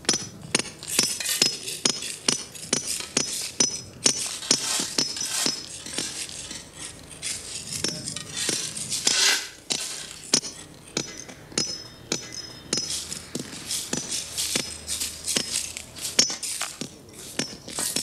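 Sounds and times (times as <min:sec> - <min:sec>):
ice picks chipping ice: 0:00.1 - 0:18.0
shovel scraping ice: 0:04.2 - 0:10.2, 0:12.9 - 0:18.0.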